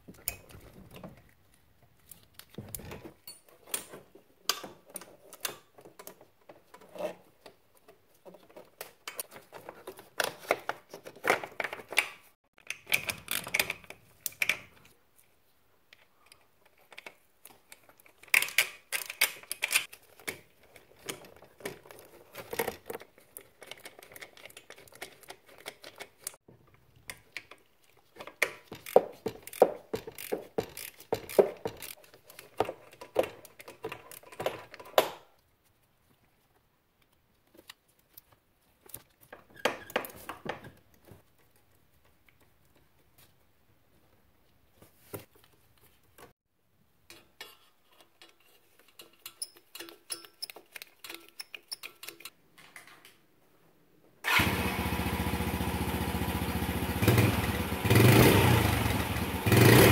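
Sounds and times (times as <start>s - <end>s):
metal and plastic parts clicking: 0.1s - 15.0s, 15.9s - 35.4s, 37.0s - 43.3s, 47.1s - 53.2s.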